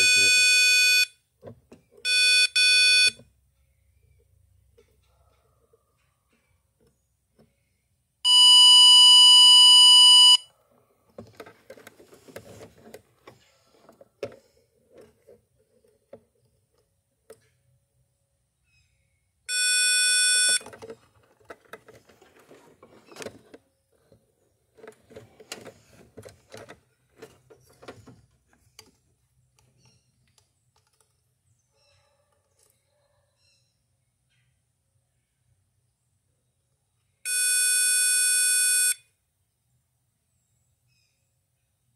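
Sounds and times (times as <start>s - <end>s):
circuit tester beeping: 0.0s - 1.1s, 2.0s - 3.2s, 8.3s - 10.4s, 19.5s - 20.7s, 37.3s - 39.0s
probe clicking and scraping: 11.1s - 17.6s, 20.4s - 31.3s.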